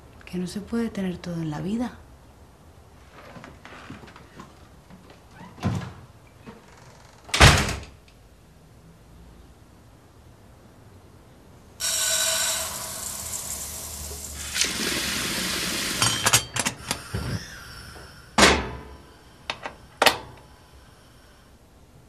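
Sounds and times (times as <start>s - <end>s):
tap water rushing into pot: 11.8s - 18.2s.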